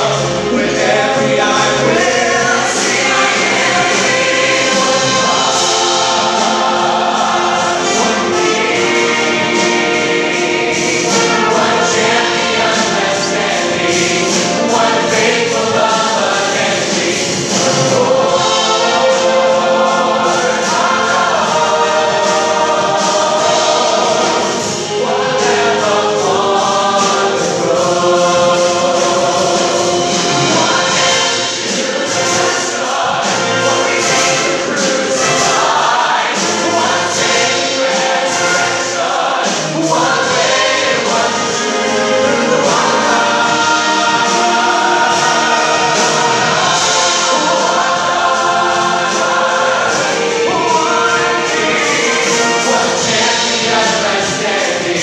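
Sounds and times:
choir singing with orchestra: 0.0s - 55.0s.

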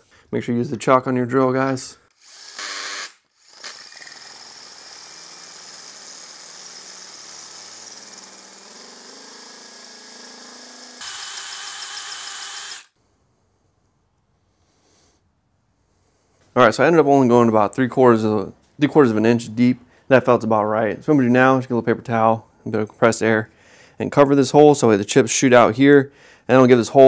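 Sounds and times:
cordless drill boring into steel: 2.1s - 13.0s.

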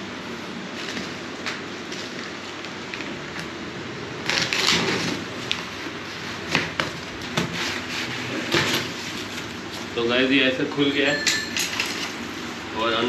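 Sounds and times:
cardboard flaps rustling scrape: 4.2s - 9.9s.

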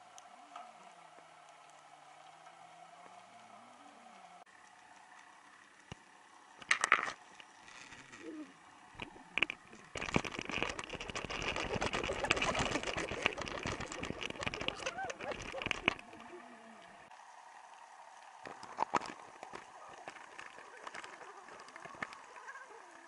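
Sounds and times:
underwater crackling and knocking: 9.0s - 16.4s, 18.4s - 22.5s.

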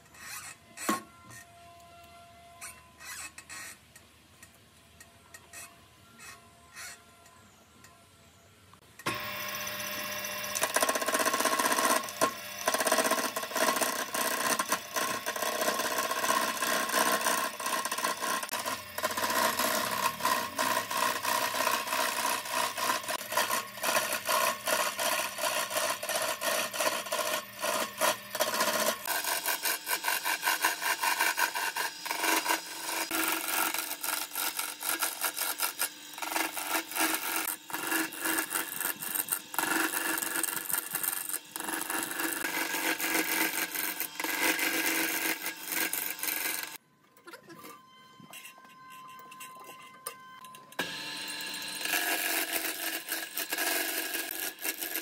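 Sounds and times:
lathe tool shaving wood: 9.1s - 46.8s, 50.8s - 55.0s.

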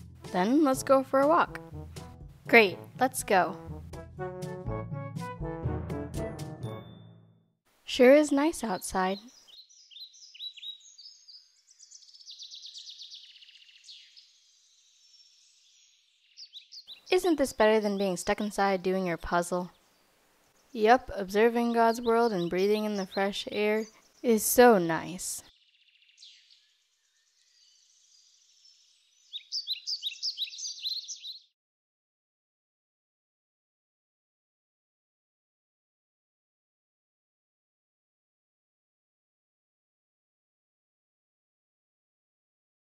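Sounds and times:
birds singing: 8.4s - 31.5s.

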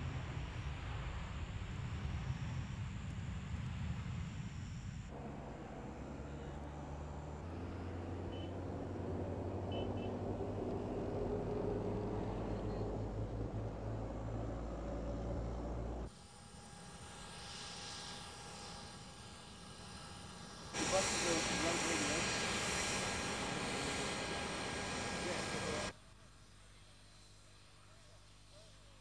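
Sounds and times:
outdoor ambience: 0.0s - 29.0s
engine humming: 5.0s - 16.1s, 19.8s - 25.9s.

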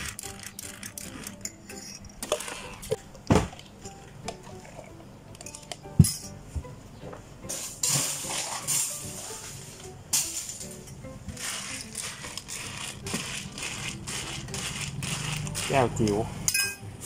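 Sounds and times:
background music: 0.0s - 17.0s
glassware and utensils clinking: 0.9s - 3.0s, 7.5s - 13.4s, 14.4s - 16.9s.

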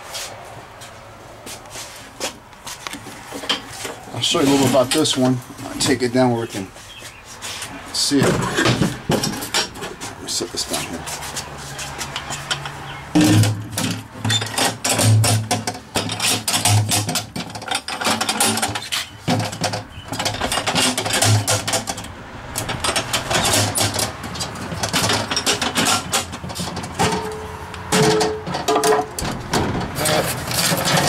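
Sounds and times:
metal box clicking and rattling: 13.2s - 31.0s.

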